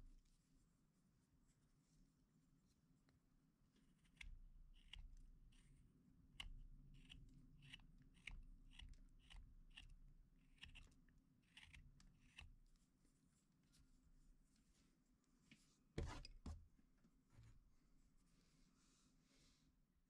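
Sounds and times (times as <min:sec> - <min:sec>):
knife slicing wood: 0:06.4 - 0:12.7.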